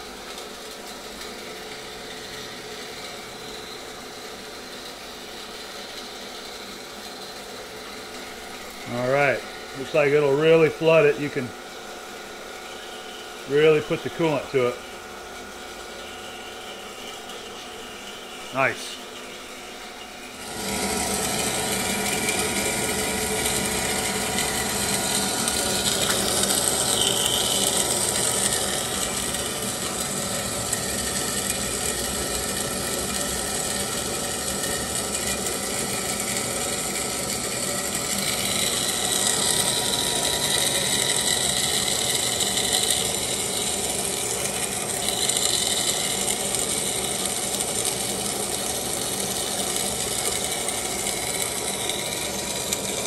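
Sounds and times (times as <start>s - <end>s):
bandsaw running: 8.2s - 11.7s, 13.0s - 14.8s, 20.2s - 53.0s.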